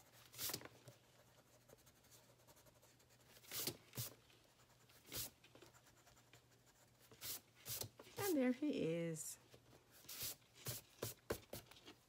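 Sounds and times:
eraser rubbing on paper: 0:01.5 - 0:06.2, 0:06.8 - 0:08.4, 0:10.0 - 0:11.6.

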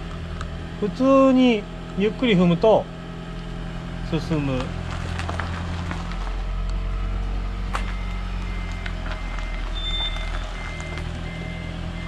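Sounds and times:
low car hum: 0:00.0 - 0:12.0
car warning beeps: 0:07.7 - 0:12.0.

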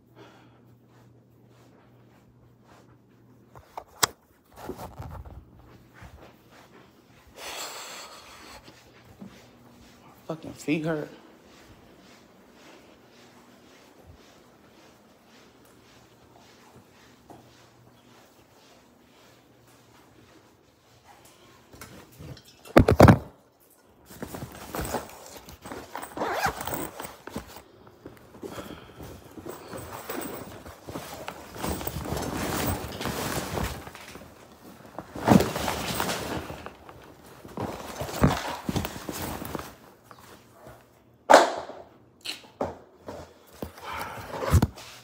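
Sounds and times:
handling rustling and scraping: 0:01.4 - 0:07.1, 0:21.6 - 0:41.0.

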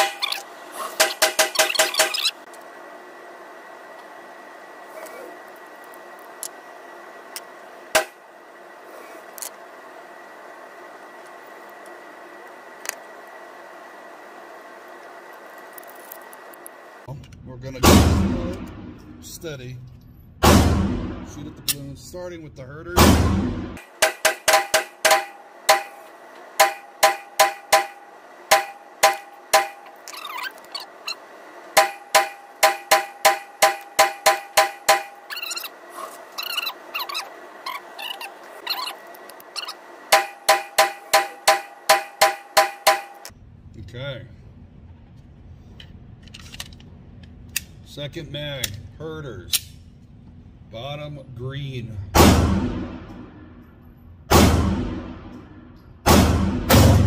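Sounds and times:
steady background hum: 0:00.0 - 0:57.0
sharp gunshot: 0:17.8 - 0:19.0, 0:20.4 - 0:21.4, 0:23.0 - 0:24.4, 0:52.2 - 0:53.3, 0:54.3 - 0:55.3, 0:56.1 - 0:57.0.

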